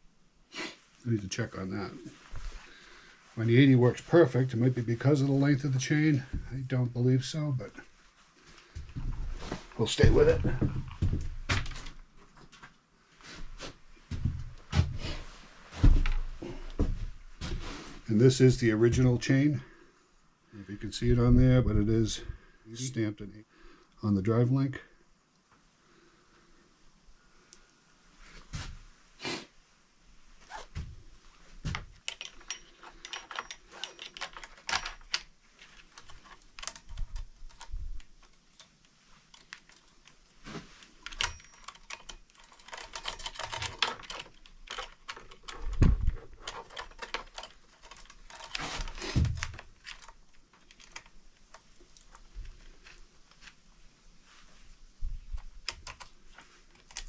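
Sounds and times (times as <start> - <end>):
saw chain clinking and rattling: 32.0 - 37.8, 41.0 - 51.1.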